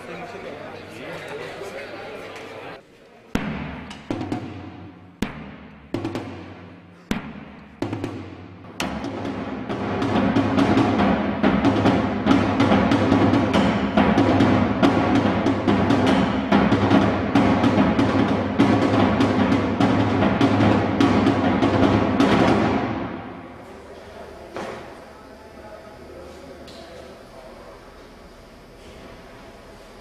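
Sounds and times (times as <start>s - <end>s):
bass drum and tom beaten rapidly: 3.4s - 23.2s.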